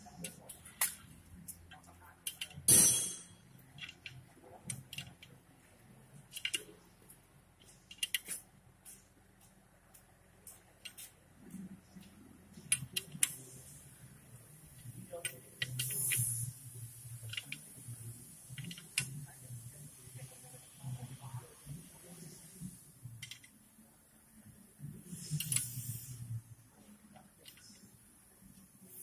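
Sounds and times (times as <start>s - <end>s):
short metallic clatter: 2.7s - 3.4s
wrench clicking on bolts: 7.6s - 8.4s.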